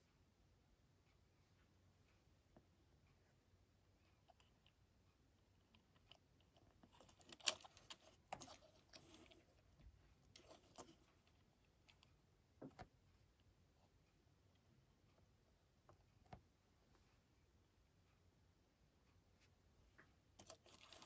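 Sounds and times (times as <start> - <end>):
small plastic items clicking: 6.9 - 9.5, 20.4 - 21.0.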